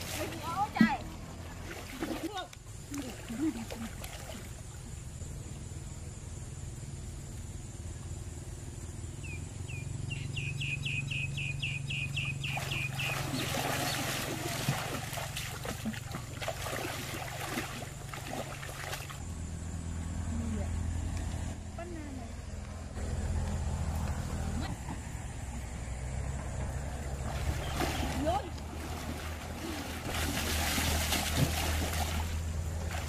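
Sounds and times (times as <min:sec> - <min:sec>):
water splashing as people wade: 0:00.0 - 0:04.9, 0:12.4 - 0:19.3, 0:27.0 - 0:33.0
low steady hum: 0:00.0 - 0:33.0
bird chirping: 0:08.8 - 0:14.1.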